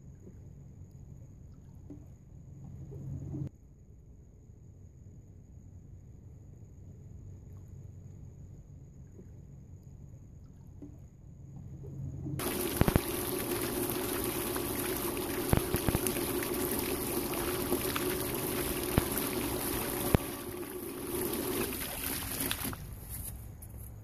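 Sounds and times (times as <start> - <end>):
steady low hum: 0.0 - 24.0
fountain water splashing: 12.4 - 23.0.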